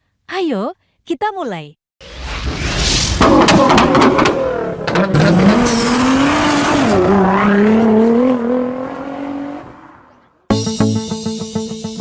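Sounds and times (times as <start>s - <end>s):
sharp cracks: 3.1s - 5.1s
sports car engine revving: 3.3s - 9.9s.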